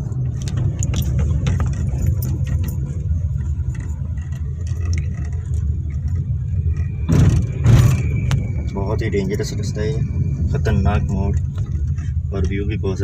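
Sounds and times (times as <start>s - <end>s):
car engine and road rumble: 0.0s - 13.0s
small clicks and rattles: 0.2s - 8.5s.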